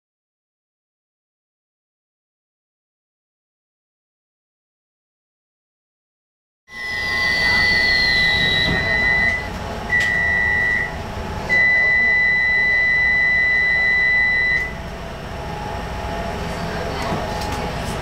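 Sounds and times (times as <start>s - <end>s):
high electronic warning beeps: 6.7s - 14.8s
train rumble: 14.7s - 18.0s.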